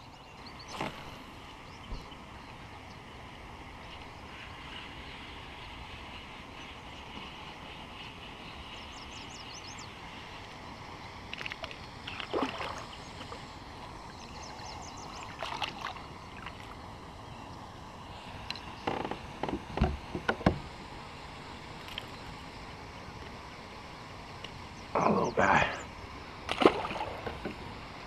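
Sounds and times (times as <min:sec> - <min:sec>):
fish splashing at the surface: 0:11.4 - 0:13.4, 0:15.2 - 0:16.8, 0:26.5 - 0:27.4
sharp knocks and thumps: 0:18.8 - 0:20.6.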